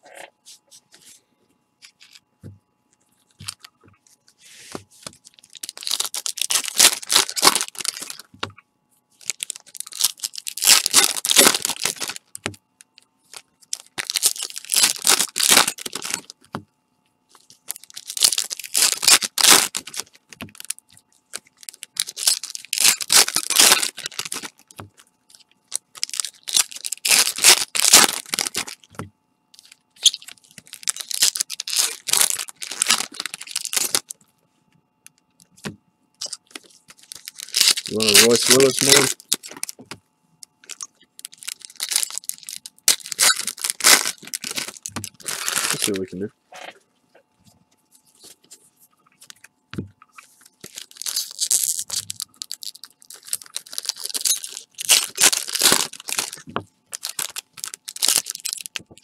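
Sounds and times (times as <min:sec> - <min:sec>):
foil wrappers tearing and crinkling: 0:05.2 - 0:08.3, 0:09.2 - 0:12.5, 0:13.3 - 0:16.5, 0:17.3 - 0:29.0, 0:29.6 - 0:34.2, 0:36.2 - 0:39.9, 0:40.6 - 0:46.2, 0:50.2 - 0:59.0.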